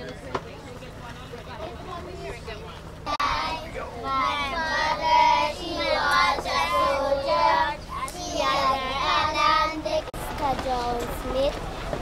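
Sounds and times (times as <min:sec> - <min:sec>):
child singing: 0:03.1 - 0:11.4.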